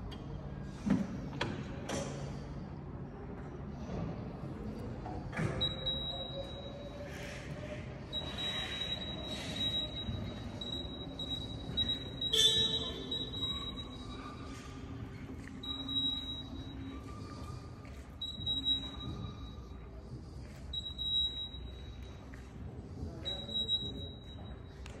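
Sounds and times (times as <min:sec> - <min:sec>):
truck warning beeper: 0:05.5 - 0:07.4, 0:08.1 - 0:19.9, 0:20.7 - 0:22.4, 0:23.2 - 0:24.9.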